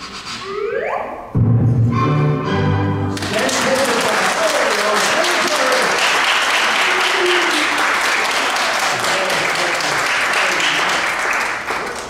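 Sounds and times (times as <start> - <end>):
audience applauding: 3.1 - 12.0.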